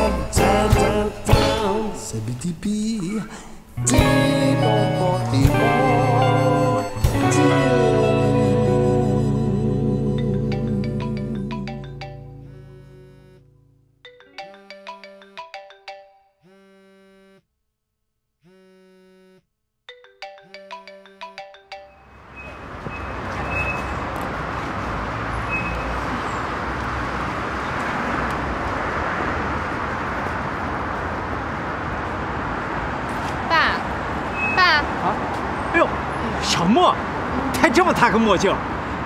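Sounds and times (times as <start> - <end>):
city street traffic: 0.0 - 15.9, 20.0 - 39.0
phone ringtone: 9.6 - 16.6, 19.9 - 22.5.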